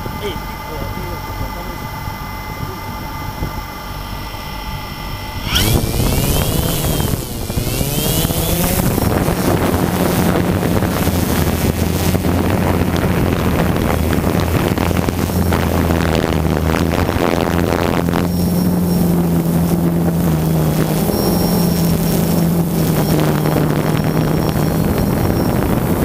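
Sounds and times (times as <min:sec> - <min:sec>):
drone motors whining: 0:00.0 - 0:26.0
rushing propeller wash: 0:05.4 - 0:26.0.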